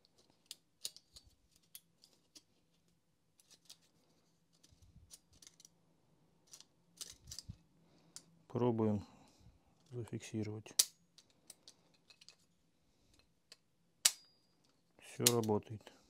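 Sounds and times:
plastic and metal parts clicking: 0.0s - 2.5s.

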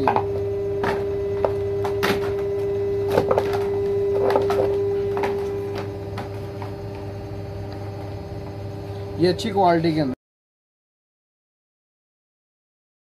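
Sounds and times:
steady hum: 0.0s - 10.2s
plastic cover knocking: 3.1s - 5.9s.

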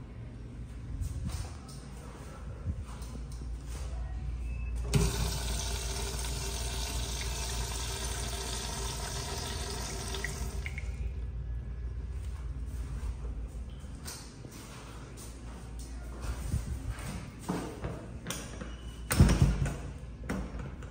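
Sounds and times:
faint steady hum: 0.0s - 14.3s.

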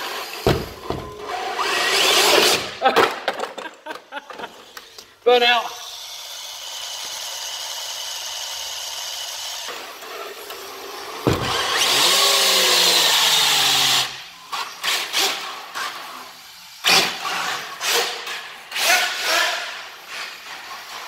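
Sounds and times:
electric motor whining: 9.7s - 14.3s.

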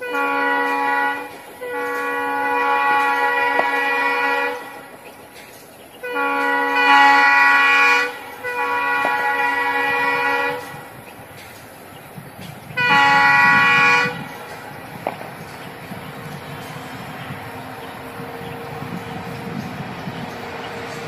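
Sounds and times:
locomotive horn blasts: 0.0s - 5.2s, 6.0s - 11.2s, 12.7s - 21.0s
low engine rumble: 8.1s - 21.0s.

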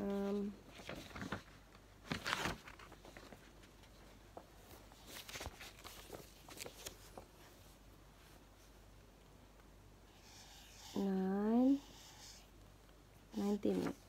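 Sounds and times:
paper rustling: 0.6s - 8.4s, 13.6s - 14.0s.

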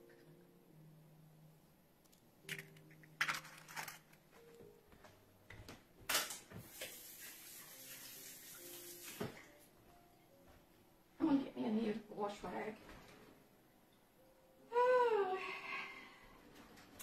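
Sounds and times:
eggshells cracking: 2.4s - 4.2s
faucet running: 6.6s - 9.6s.

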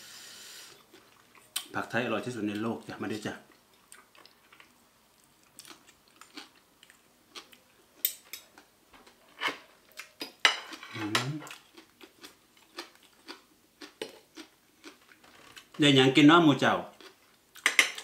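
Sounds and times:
cutlery clinking on plate: 10.4s - 11.3s, 17.6s - 18.0s.

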